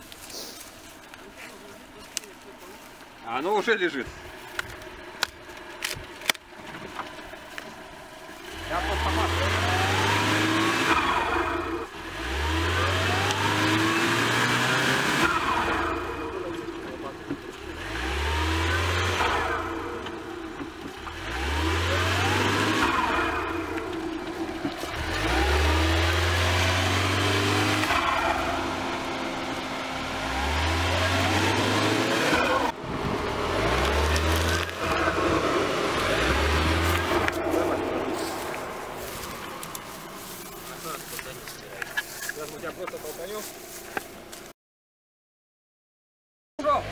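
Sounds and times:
wheels spinning in mud: 0.0s - 44.5s
car engine revving hard: 8.4s - 39.6s.

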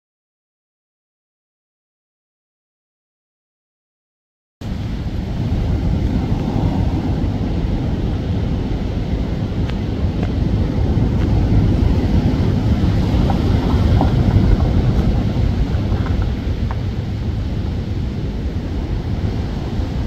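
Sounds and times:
wind buffeting microphone: 4.6s - 20.0s.

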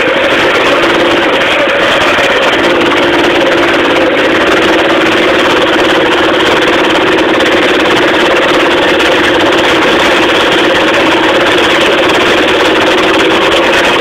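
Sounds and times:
small engine droning: 0.0s - 14.0s.

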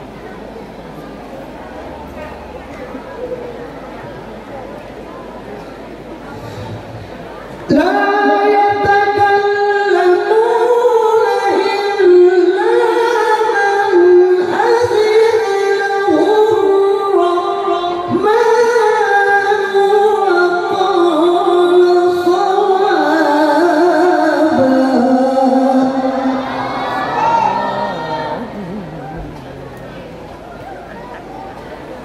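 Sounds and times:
man reciting melodically into microphone: 7.7s - 30.2s.

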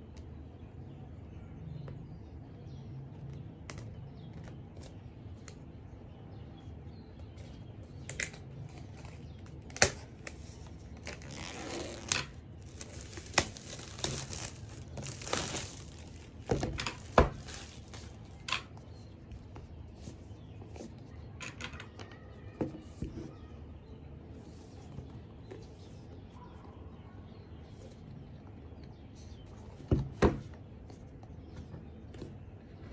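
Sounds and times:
plastic shrink wrap tearing: 9.6s - 18.5s.

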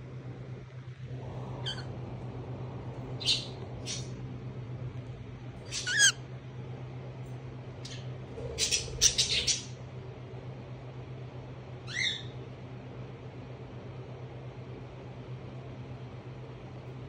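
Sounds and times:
steady low hum: 0.0s - 17.0s
cockatiel chirps and squawks: 1.6s - 1.9s, 5.7s - 6.2s, 8.6s - 9.7s.

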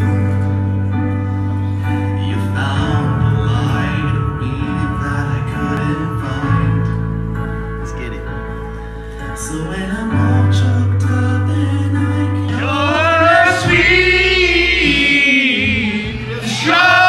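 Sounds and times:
music playing: 0.0s - 17.0s
man singing into a microphone: 1.9s - 7.2s, 9.4s - 17.0s.

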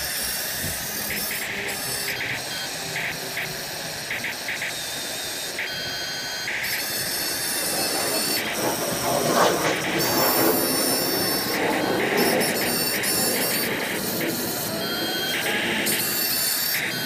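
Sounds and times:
toy excavator motors whining: 0.0s - 17.0s
grinding rush: 7.2s - 16.6s.

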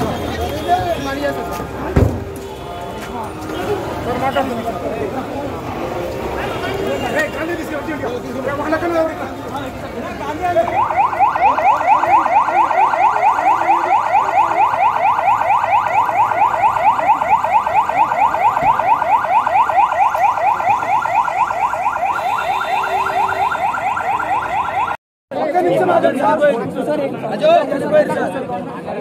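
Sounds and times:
police siren yelping: 10.3s - 25.0s.

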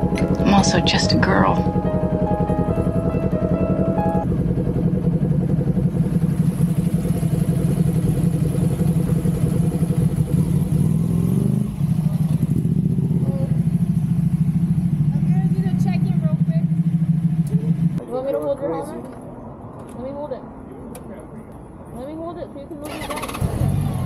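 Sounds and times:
motorcycle engine idling: 0.0s - 18.0s.

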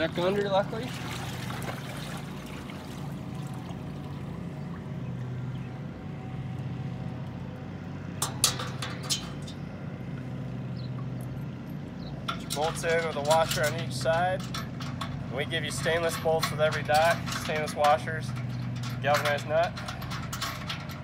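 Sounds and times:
water sloshing: 0.0s - 6.0s
low motor hum: 0.0s - 21.0s
metal clinks: 12.2s - 21.0s.

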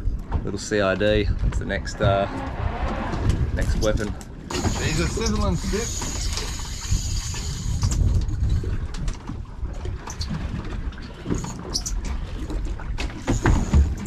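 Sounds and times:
wind buffeting microphone: 0.0s - 13.0s
water sloshing against boat hull: 0.0s - 14.0s
fishing reels clicking: 4.5s - 8.5s.

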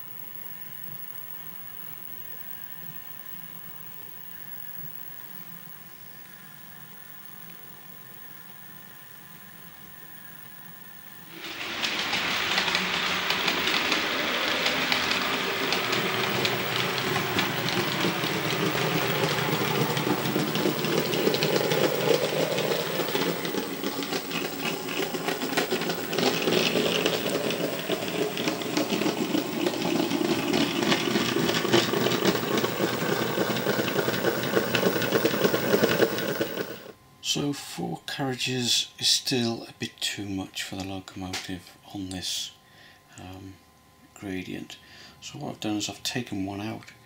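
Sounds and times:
fast fine clicking: 11.3s - 36.9s
model locomotive running: 11.3s - 37.0s.

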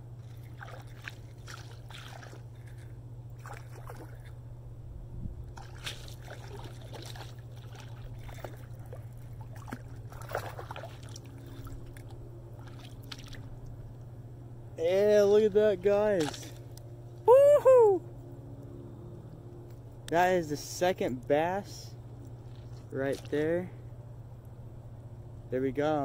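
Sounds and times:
small water splashes: 0.0s - 4.4s, 5.5s - 14.1s, 16.1s - 16.8s
steady low hum: 0.0s - 26.0s.

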